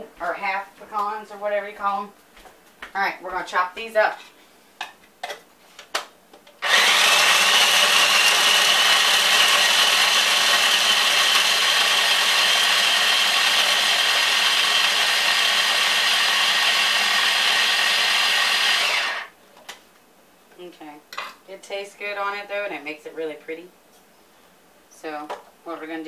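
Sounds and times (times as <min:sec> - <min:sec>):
electric food chopper running: 0:06.6 - 0:19.3.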